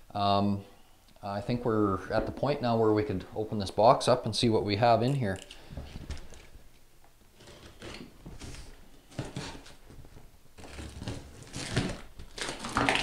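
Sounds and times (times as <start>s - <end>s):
cardboard scraping: 7.4s - 13.0s
box cutter slitting tape: 10.6s - 13.0s.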